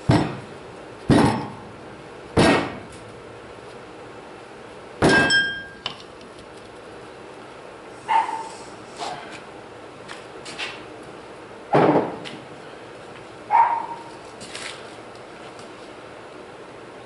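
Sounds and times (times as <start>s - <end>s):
heavy thud: 0.1s - 0.5s, 2.4s - 2.9s
ringing metallic clink: 5.1s - 5.9s.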